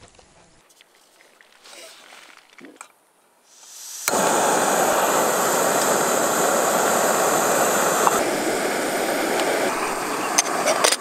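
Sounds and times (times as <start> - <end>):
gas stove flame hissing: 3.5 - 11.0.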